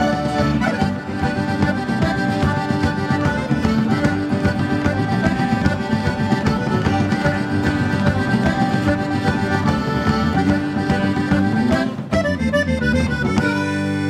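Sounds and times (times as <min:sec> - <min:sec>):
acoustic guitar: 0:00.0 - 0:14.0
button accordion melody: 0:00.0 - 0:14.0
electric bass: 0:00.0 - 0:14.0.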